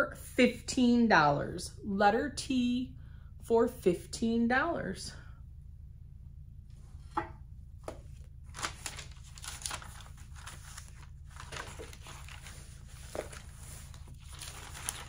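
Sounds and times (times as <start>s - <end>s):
low steady hum: 0.0s - 15.0s
items rustling and knocking: 11.3s - 15.0s.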